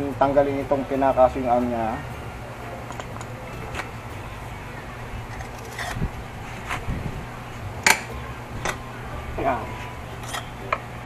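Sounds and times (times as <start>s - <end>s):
low steady hum: 0.0s - 11.0s
metal tools clinking: 2.9s - 3.9s.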